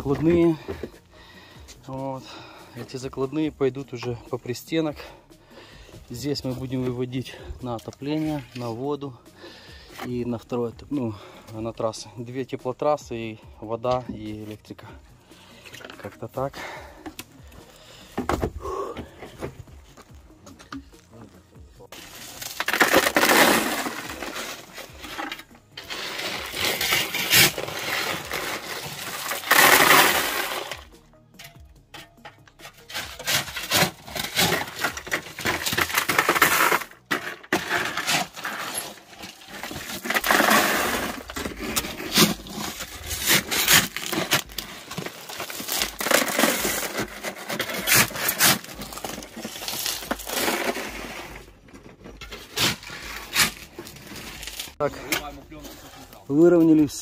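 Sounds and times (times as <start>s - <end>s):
crushed stone crunching under shovel: 21.9s - 57.0s.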